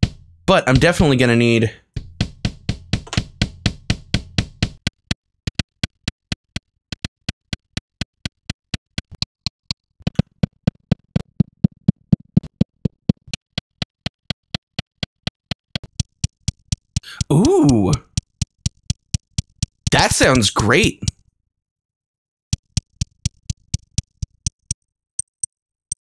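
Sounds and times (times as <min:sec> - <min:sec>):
kick drum with clicky attack: 0:00.0 - 0:01.1, 0:02.0 - 0:06.1.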